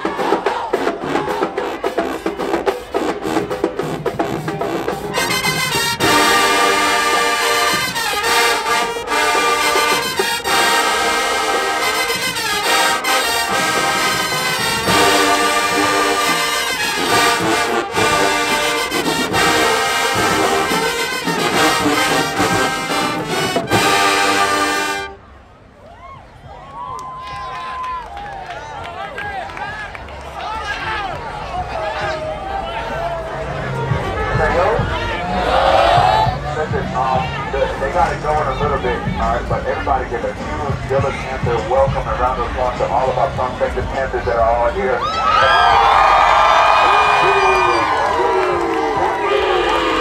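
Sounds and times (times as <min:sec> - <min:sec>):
marching band drumming: 0:00.0 - 0:25.2
brass section playing chords: 0:00.1 - 0:25.4.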